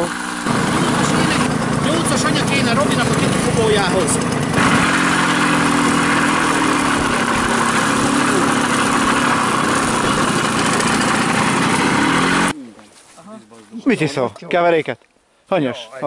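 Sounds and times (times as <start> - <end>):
moped engine running: 0.0 - 12.5.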